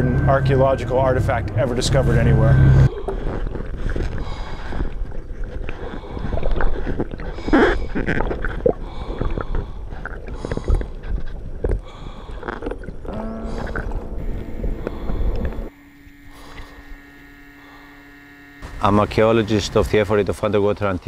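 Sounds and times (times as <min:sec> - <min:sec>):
bubbling underwater: 0:02.8 - 0:15.7.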